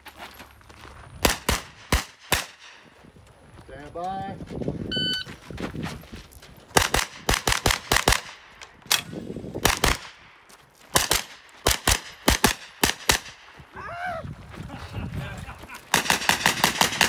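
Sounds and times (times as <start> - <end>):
carbine gunshots: 1.2 - 2.8, 6.7 - 13.5, 15.9 - 17.0.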